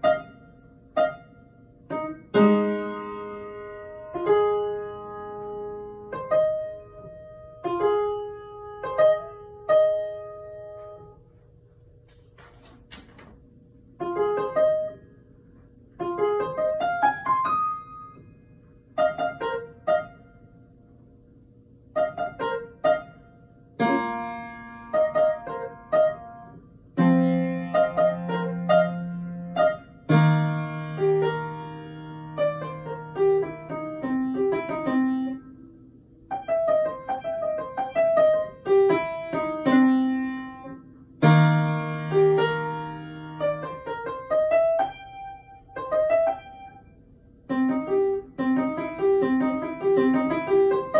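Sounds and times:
child playing piano: 0.0 - 11.2, 14.0 - 15.0, 16.0 - 18.2, 19.0 - 20.3, 22.0 - 23.2, 23.8 - 35.6, 36.3 - 46.9, 47.5 - 50.9.

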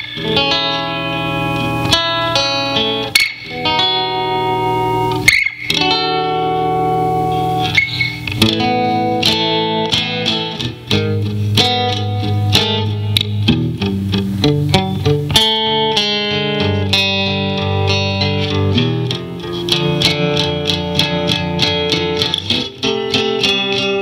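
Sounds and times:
cigar box guitar plucked: 0.0 - 24.0.

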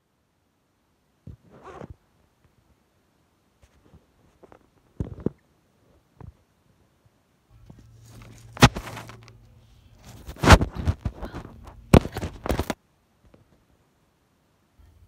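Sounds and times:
low hum: 7.4 - 12.8
phone handling knocks and rubbing: 8.2 - 9.3, 10.1 - 12.8.

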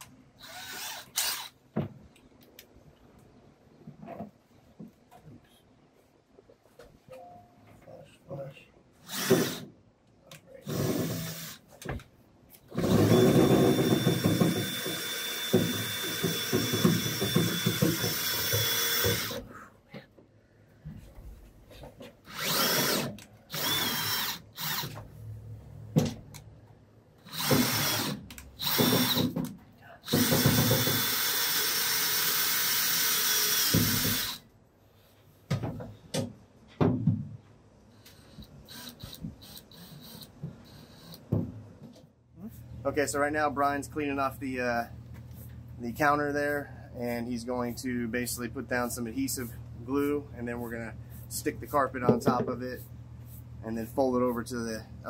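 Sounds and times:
cordless drill driving screw: 0.4 - 1.6, 9.0 - 9.7, 10.6 - 11.6, 12.7 - 19.4, 22.3 - 25.0, 27.2 - 29.4, 30.0 - 34.4, 38.1 - 41.3.

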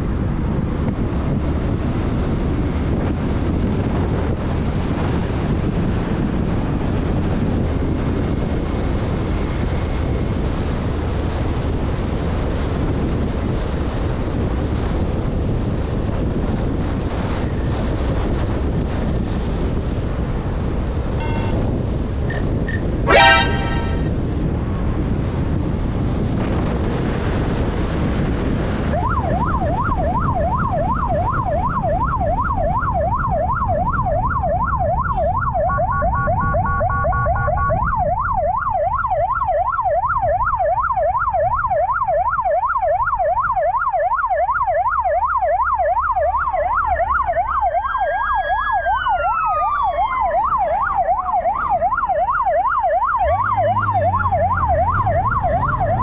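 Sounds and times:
wind noise: 0.0 - 42.3, 46.2 - 56.0
siren in fast yelp: 23.1 - 24.2, 29.0 - 56.0
slow siren rising and falling: 23.1 - 24.2, 28.9 - 56.0
steady tones: 23.1 - 24.2.

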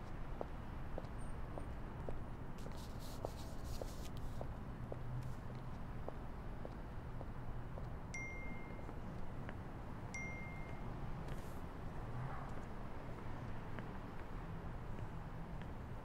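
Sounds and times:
phone notification chime: 8.2 - 8.8, 10.2 - 10.8.

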